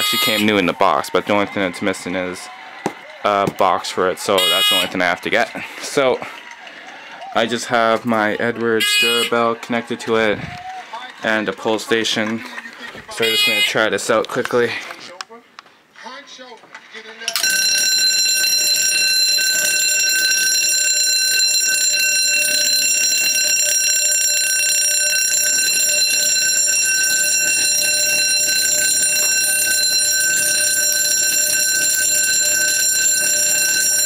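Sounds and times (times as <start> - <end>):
fire alarm bell ringing: 0.0 - 0.6, 4.4 - 5.0, 8.8 - 9.4, 13.2 - 13.8, 17.3 - 34.0.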